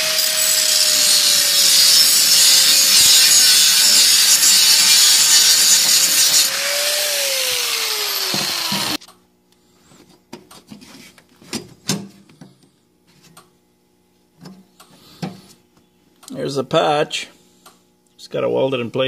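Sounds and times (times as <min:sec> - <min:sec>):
angle grinder cutting sheet steel: 0:00.0 - 0:09.0.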